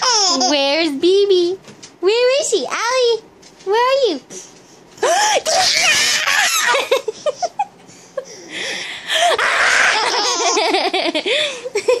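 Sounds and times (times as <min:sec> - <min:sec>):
toddler laughing: 0:09.8 - 0:11.2.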